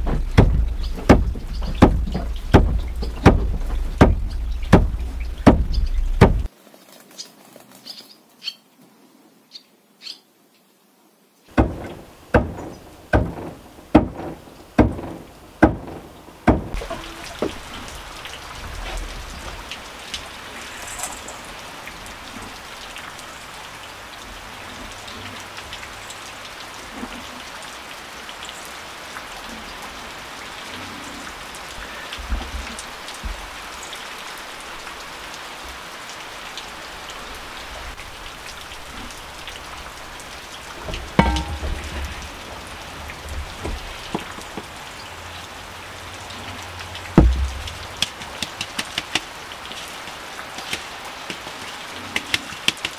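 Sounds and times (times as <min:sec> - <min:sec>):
sharp knocks: 0:00.0 - 0:06.5, 0:11.5 - 0:17.8, 0:40.8 - 0:42.4, 0:43.4 - 0:44.7, 0:47.2 - 0:49.2.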